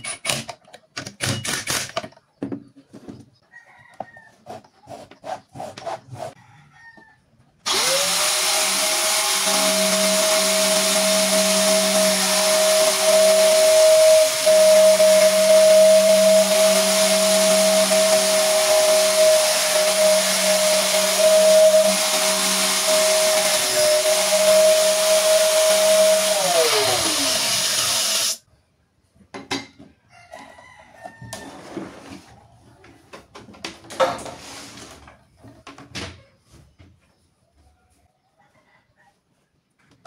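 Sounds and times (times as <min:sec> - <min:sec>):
angle grinder whining: 0:07.7 - 0:28.4.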